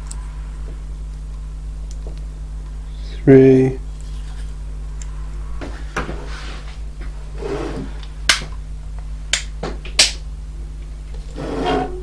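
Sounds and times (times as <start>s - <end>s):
low hum: 0.0s - 9.6s.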